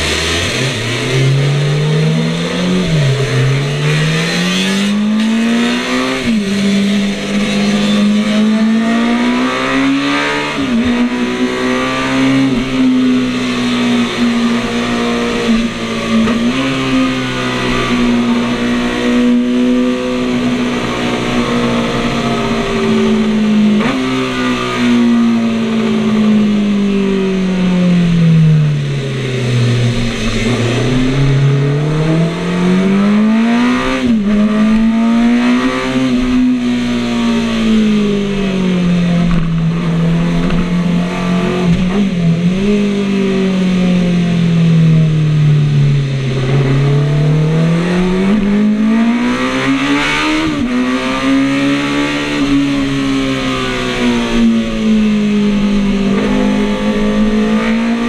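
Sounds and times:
motorcycle engine at speed: 0.0s - 58.0s.

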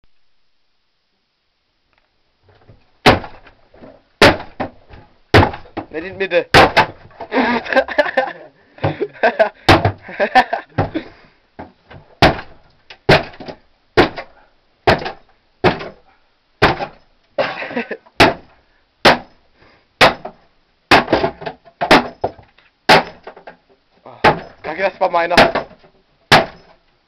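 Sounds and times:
heavy blows smashing wooden cabinet: 2.5s - 7.8s, 8.8s - 16.0s, 16.6s - 17.0s, 18.2s - 19.4s, 20.0s - 23.5s, 24.2s - 26.7s
wood splitting: 2.5s - 7.8s, 8.8s - 10.2s, 10.8s - 16.0s, 16.6s - 17.0s, 18.2s - 19.3s, 20.0s - 26.8s.

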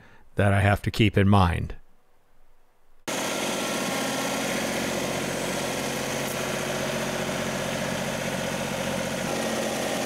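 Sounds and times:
tractor diesel engine running: 3.1s - 10.0s.

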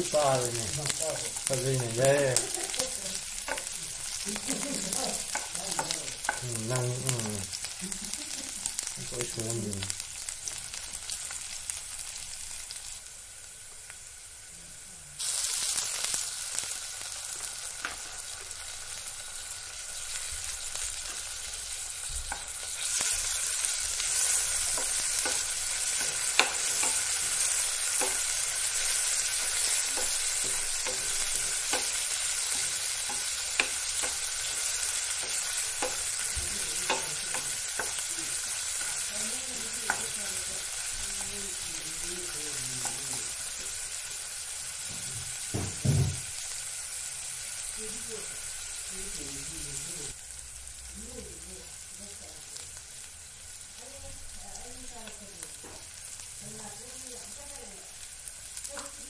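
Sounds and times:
onions sizzling in hot oil: 0.0s - 59.0s
spatula tapping and scraping a pan: 3.4s - 3.8s, 5.2s - 6.6s, 22.2s - 38.1s, 38.7s - 40.4s.

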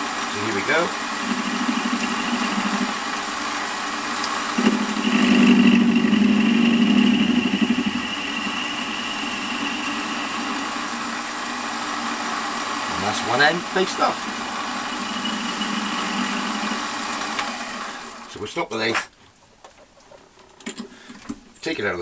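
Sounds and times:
lathe cutting metal: 0.0s - 18.3s.

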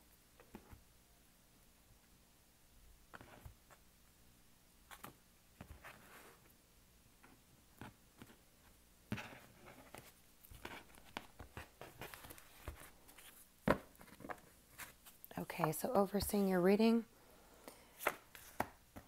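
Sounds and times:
cards tapping and sliding: 18.0s - 19.0s.

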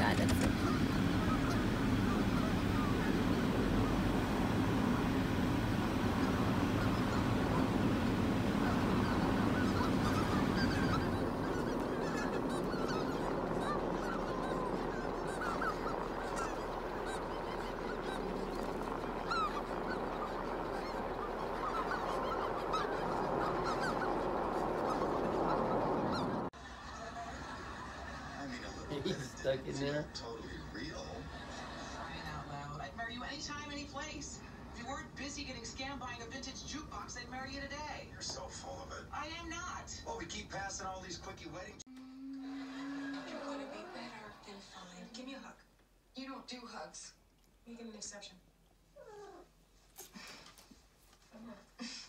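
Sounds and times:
car engine rumble: 0.0s - 11.9s
geese honking: 0.0s - 26.5s.

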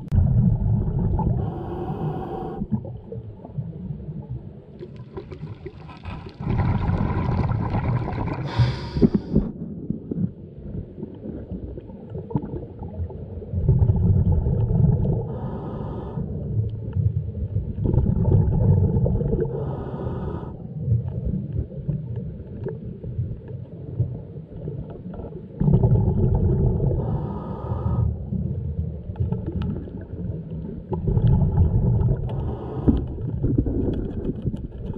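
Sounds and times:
low underwater rumble: 0.0s - 34.9s
diver breathing through regulator: 1.3s - 2.8s, 8.3s - 9.5s, 15.2s - 16.4s, 19.4s - 20.7s, 26.9s - 28.2s, 32.2s - 33.4s.

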